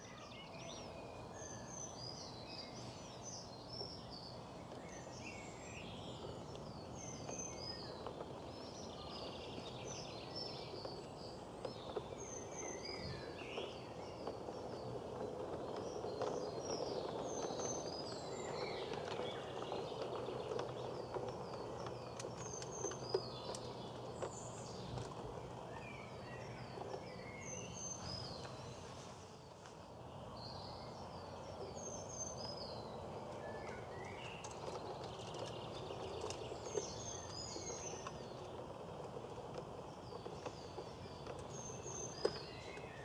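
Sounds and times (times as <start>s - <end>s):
birds chirping and singing: 0.0s - 43.0s
model train rumbling on track: 0.3s - 28.7s.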